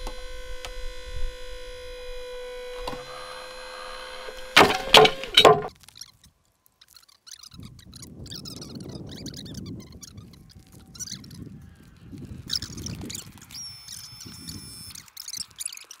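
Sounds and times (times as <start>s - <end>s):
hydraulic pump whining: 0.0s - 5.7s
loud sharp cracks: 2.8s - 5.8s.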